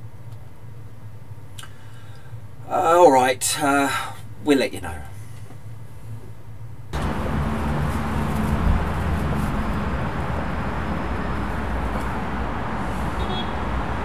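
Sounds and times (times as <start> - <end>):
road traffic rumble: 6.9 - 14.0.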